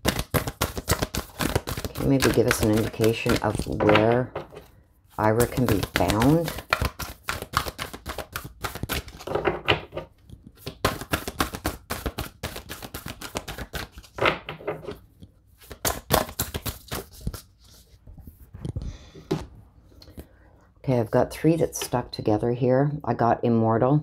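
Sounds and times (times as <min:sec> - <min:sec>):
cards being shuffled: 0:00.0 - 0:04.6, 0:05.2 - 0:18.0.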